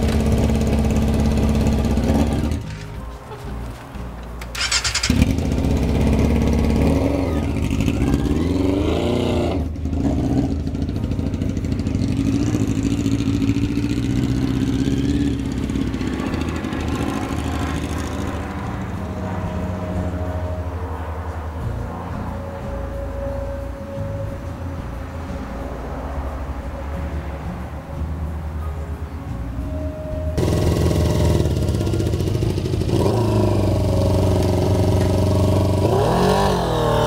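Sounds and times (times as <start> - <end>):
motorcycle engine revving: 0.0 - 27.6, 30.4 - 37.0
motorcycle starter cranking: 1.6 - 6.5.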